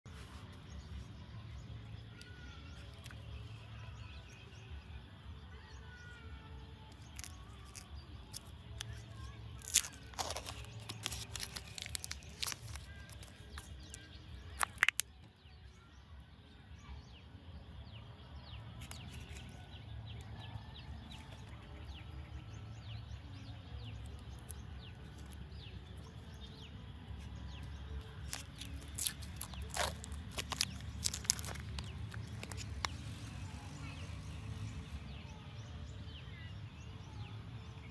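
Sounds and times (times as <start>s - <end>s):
plastic cups crackling: 6.9s - 15.1s, 27.5s - 33.2s.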